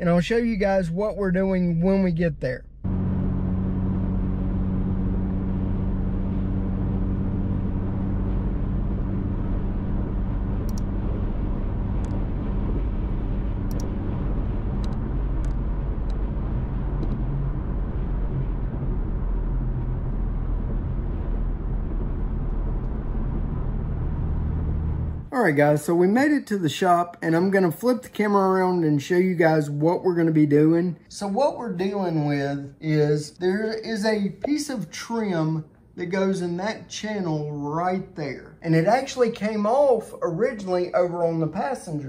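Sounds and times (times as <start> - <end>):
car engine drone: 0.0 - 26.0
tyre and road noise: 2.9 - 25.3
light clicks: 13.7 - 13.9.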